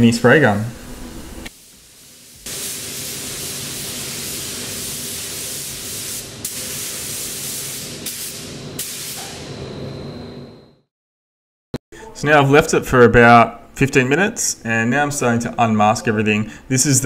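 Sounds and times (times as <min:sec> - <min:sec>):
spray gun hissing: 0:01.5 - 0:09.4.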